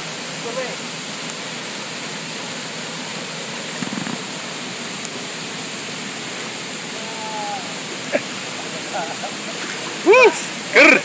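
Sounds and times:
water pouring over rocks: 2.6 - 11.0.

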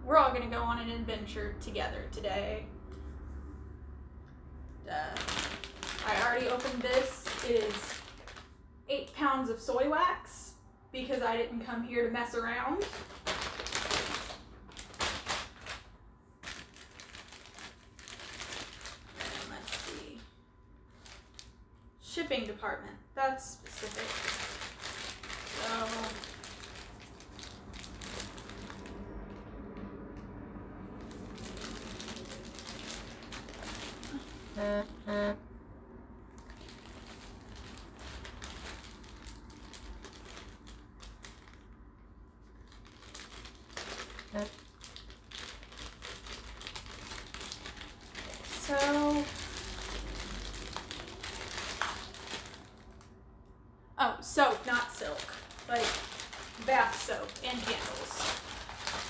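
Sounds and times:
plastic packaging crinkling: 4.9 - 8.6, 12.3 - 21.7, 23.5 - 30.1, 30.8 - 35.4, 36.3 - 53.2, 54.5 - 59.0
short pitched tones: 34.4 - 35.4.

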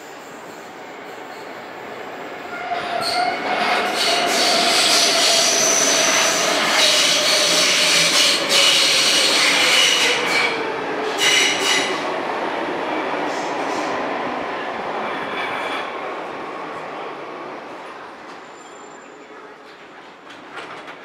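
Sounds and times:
train running noise: 0.0 - 21.0
train wheel squeal: 0.1 - 1.6, 2.5 - 12.0, 18.3 - 19.8.

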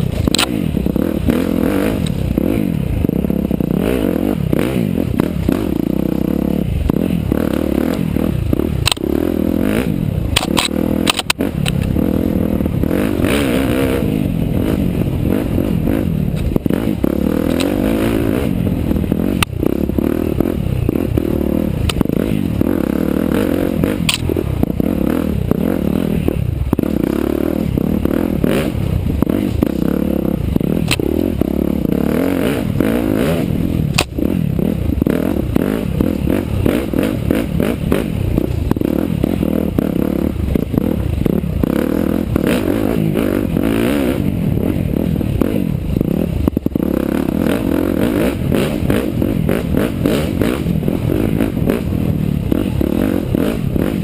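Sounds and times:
motorcycle engine revving: 0.0 - 54.0
sharp clicks and knocks: 0.2 - 0.6, 8.8 - 9.1, 10.3 - 12.0, 23.9 - 24.7, 30.8 - 31.1, 33.9 - 34.2.

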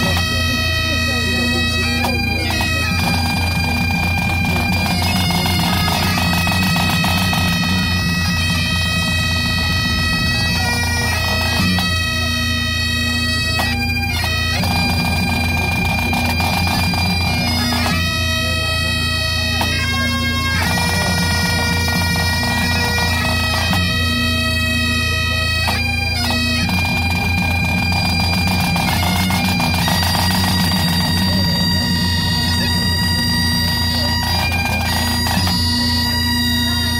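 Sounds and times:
bagpipes playing a tune: 0.0 - 36.9
snare and tenor drums: 0.0 - 36.9.

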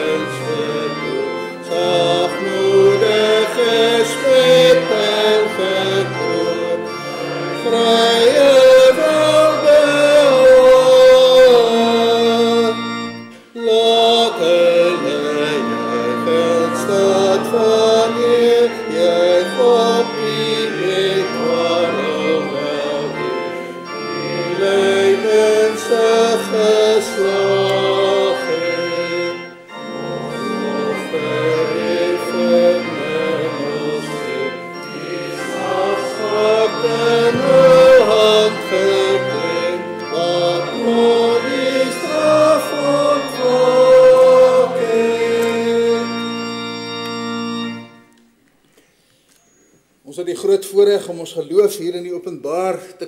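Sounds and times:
congregation singing a psalm: 0.0 - 48.1
pipe organ: 0.0 - 53.0.

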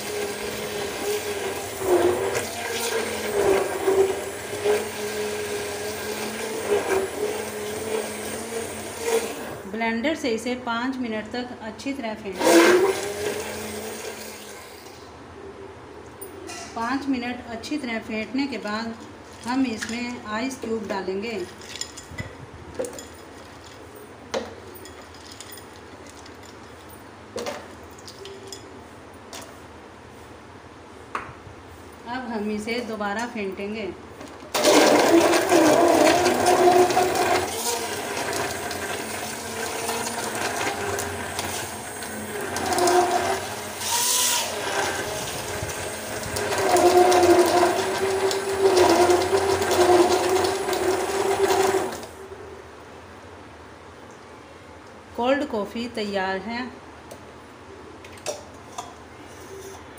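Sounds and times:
electric hand blender whisking liquid: 0.0 - 9.7, 12.4 - 14.7, 34.6 - 52.2
ice cubes clinking in metal pot: 24.8 - 26.6.

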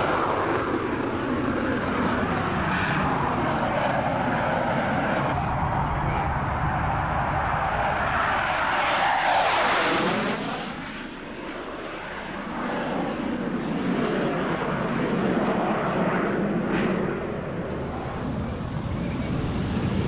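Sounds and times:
jet engines passing low: 0.0 - 20.0.

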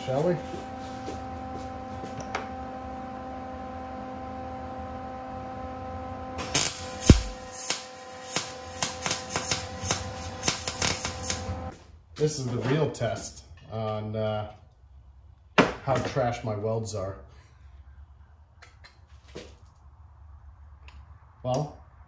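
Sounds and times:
steady electrical hum: 0.0 - 15.6
welding arc crackling: 6.4 - 11.7.

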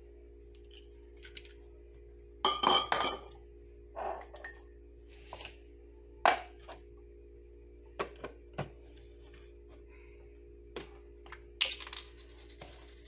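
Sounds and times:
glass bottles clinking: 2.4 - 3.3.

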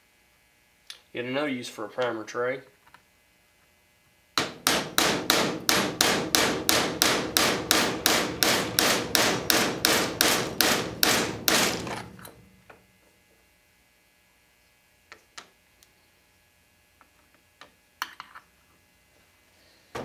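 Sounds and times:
hammer tapping metal punch: 4.4 - 12.8.

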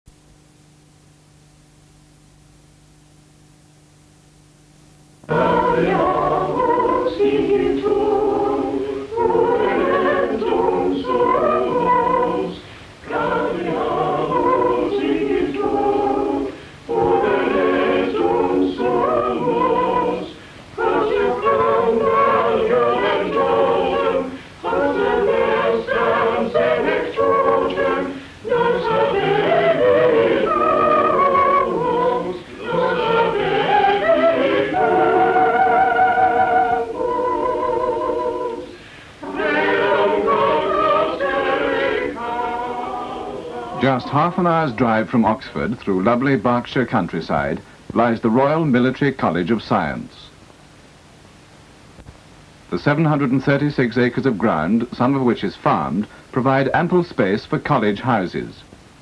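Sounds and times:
faint steady hum: 0.1 - 59.0
choir singing: 5.3 - 45.1.

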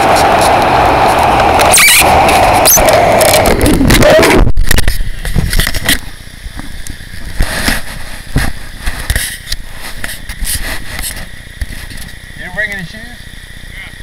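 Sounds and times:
wind rumbling on microphone: 0.0 - 12.0
microphone handling crackling: 2.0 - 12.1.

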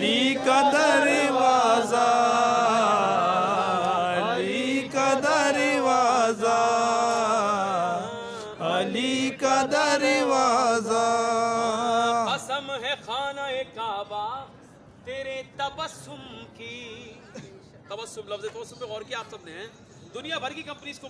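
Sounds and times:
man chanting unaccompanied: 0.0 - 14.1.

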